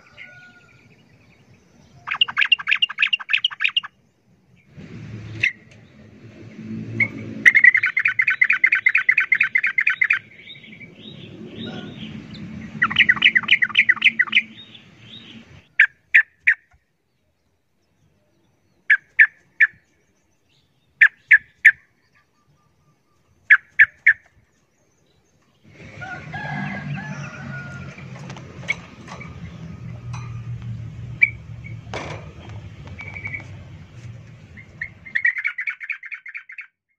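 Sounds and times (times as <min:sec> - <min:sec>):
bird chirps: 0:00.0 - 0:04.7, 0:07.0 - 0:28.0, 0:28.7 - 0:36.8
bird chattering: 0:02.0 - 0:04.0, 0:07.4 - 0:12.2, 0:12.8 - 0:16.8, 0:34.4 - 0:36.7.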